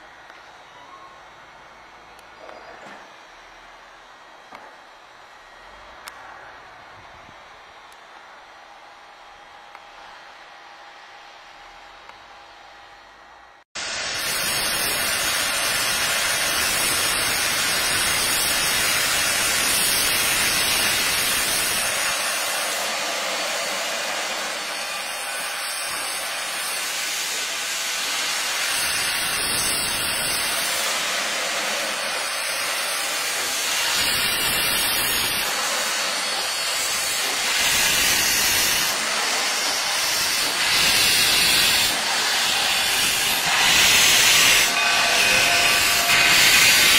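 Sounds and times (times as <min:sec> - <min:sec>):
steam locomotive hissing steam: 0:13.8 - 0:46.9.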